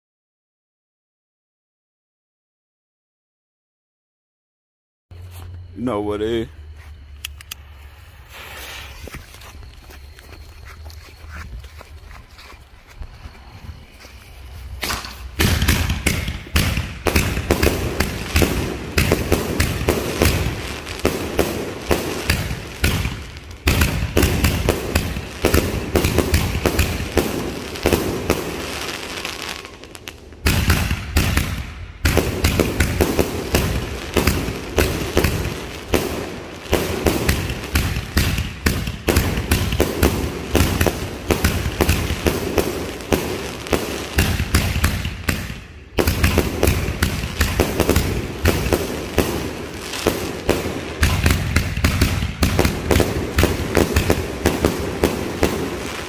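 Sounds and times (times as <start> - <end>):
firework launch thumps: 14.7 - 24.8
firework breaks cracking: 14.7 - 56.0.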